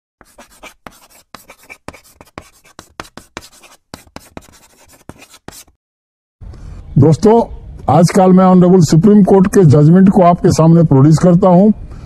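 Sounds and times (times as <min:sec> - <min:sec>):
marker pen scribbling: 0:00.2 - 0:05.8.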